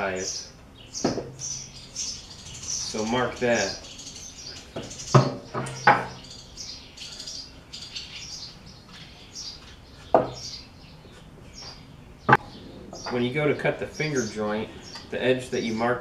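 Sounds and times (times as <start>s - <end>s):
sharp wooden knocks: 1.0s - 1.4s.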